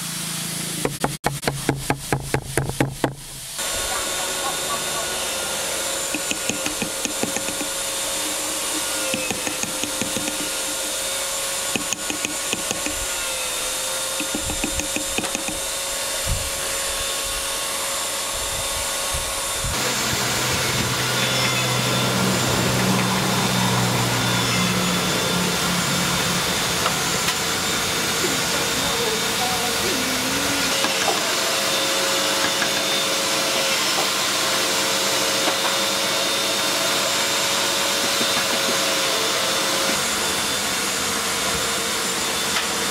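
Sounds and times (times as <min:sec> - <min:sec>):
small power tool running: 0:00.0 - 0:42.9
rasping file strokes: 0:05.9 - 0:15.9.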